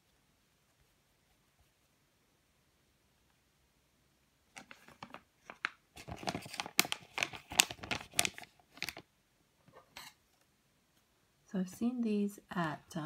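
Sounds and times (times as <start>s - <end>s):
plastic bag crinkling: 4.6s - 9.1s.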